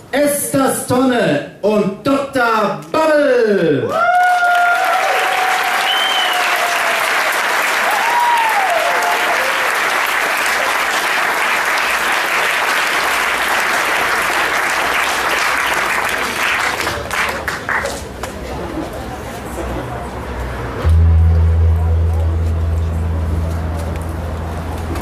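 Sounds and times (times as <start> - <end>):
audience applauding: 3.9 - 18.1.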